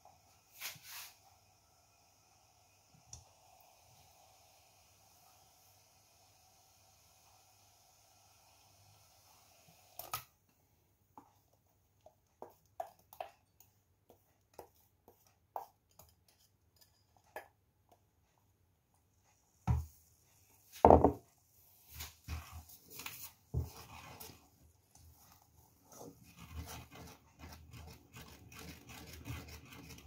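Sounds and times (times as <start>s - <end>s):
spoon stirring in saucepan: 11.2s - 18.4s, 21.7s - 30.0s
wooden spoon scraping glass bowl: 21.9s - 30.0s.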